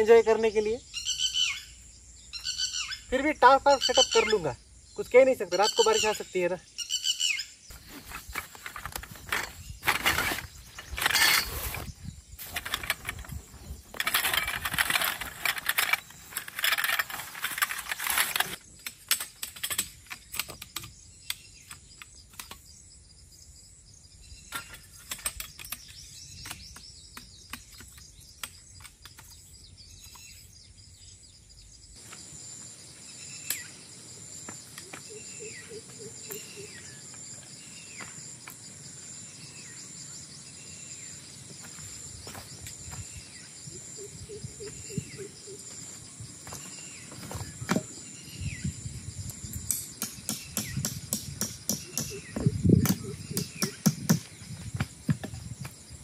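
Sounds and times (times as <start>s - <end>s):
bird calls: 0.0s - 18.8s, 19.8s - 32.0s, 32.8s - 48.8s, 49.6s - 55.4s
insects droning: 0.0s - 56.0s
tarp rustling and crumpling: 7.7s - 18.6s
gear clicks and knocks: 12.4s - 20.9s.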